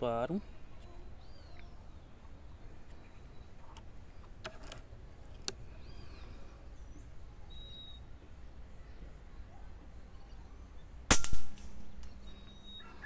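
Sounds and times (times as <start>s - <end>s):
small bird chirping: 0.7s - 3.8s, 5.6s - 11.0s, 11.9s - 13.0s.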